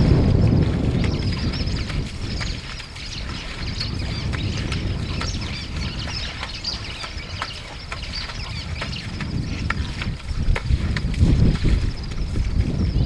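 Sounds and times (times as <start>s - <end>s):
wind rumbling on microphone: 0.0s - 13.0s
small birds chirping: 0.9s - 10.1s.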